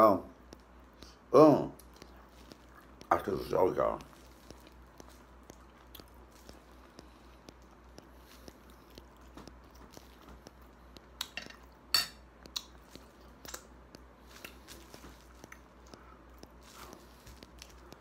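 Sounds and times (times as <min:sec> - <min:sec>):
person chewing: 0:00.3 - 0:18.0.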